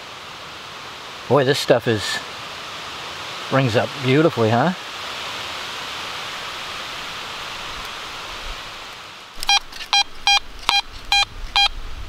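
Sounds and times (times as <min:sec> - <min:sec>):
steady hiss: 0:00.0 - 0:12.0
metal detector beeps: 0:09.4 - 0:11.8.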